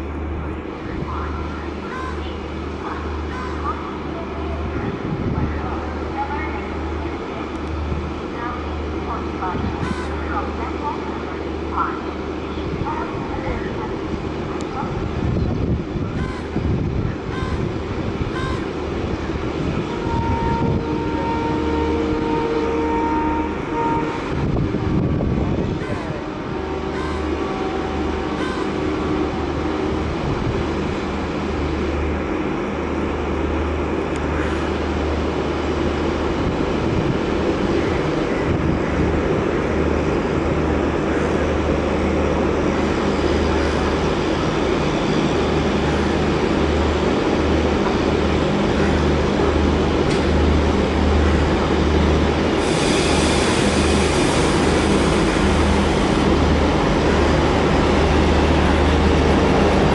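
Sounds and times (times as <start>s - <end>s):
diesel locomotive engine drone: 0.0s - 59.9s
train coaches rolling on rails: 0.0s - 59.9s
hiss: 52.6s - 55.5s.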